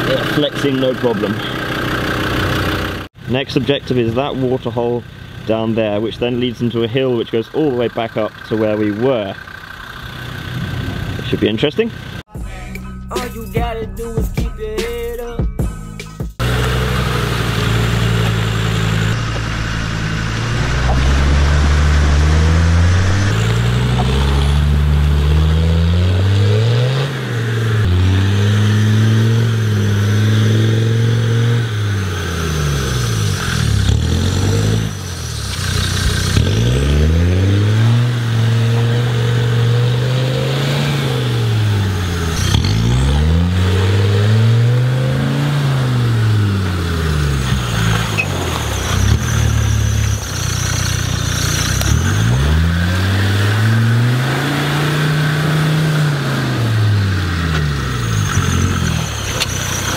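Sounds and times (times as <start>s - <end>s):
car engine revving: 0.0s - 12.3s, 16.4s - 59.9s.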